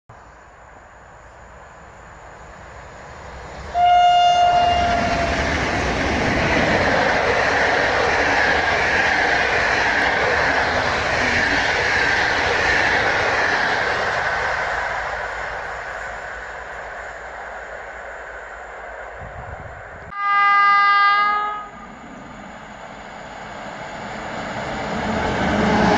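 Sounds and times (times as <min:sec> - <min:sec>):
train wheels on rails: 0:01.2 - 0:20.2, 0:21.8 - 0:25.9
train horn blast: 0:03.7 - 0:05.5, 0:20.1 - 0:22.0.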